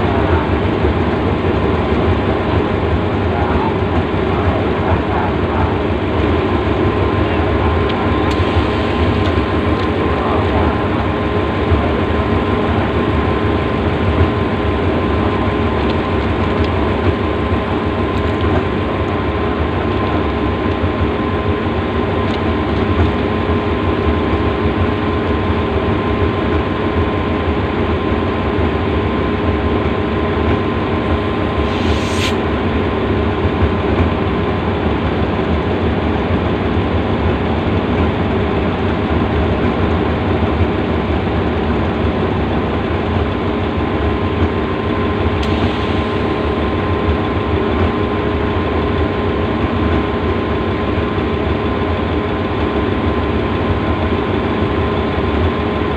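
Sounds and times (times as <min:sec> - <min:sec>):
diesel locomotive idling: 0:00.0 - 0:55.9
brief hiss: 0:31.6 - 0:32.5.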